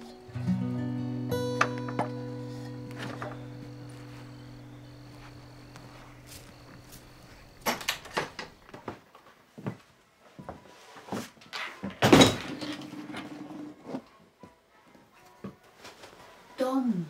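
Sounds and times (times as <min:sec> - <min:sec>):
acoustic guitar chord: 0:00.0 - 0:07.6
footsteps: 0:01.7 - 0:11.8.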